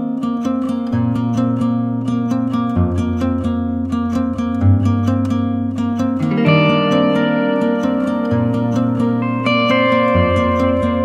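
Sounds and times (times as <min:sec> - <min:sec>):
plucked string notes: 0:00.0 - 0:11.0.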